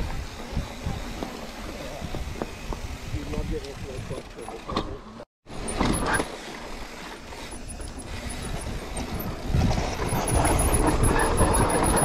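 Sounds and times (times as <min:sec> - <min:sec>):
bike tyres rumbling on rock: 0:00.0 - 0:04.4, 0:05.6 - 0:12.0
wind on microphone: 0:08.1 - 0:12.0.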